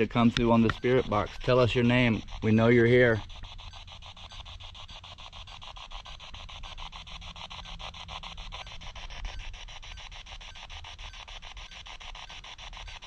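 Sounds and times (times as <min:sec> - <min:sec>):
pulsing radio static: 0:00.0 - 0:13.0.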